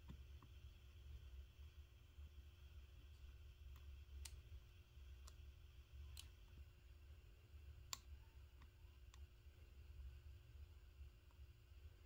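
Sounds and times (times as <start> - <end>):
steady low hum: 0.0 - 12.0
faint sharp clicks: 3.7 - 4.5, 5.2 - 6.5, 7.8 - 9.3.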